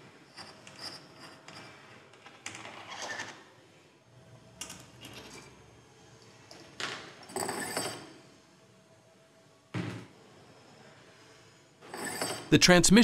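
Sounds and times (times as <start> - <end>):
metal tool scraping and clinking: 11.8 - 12.5.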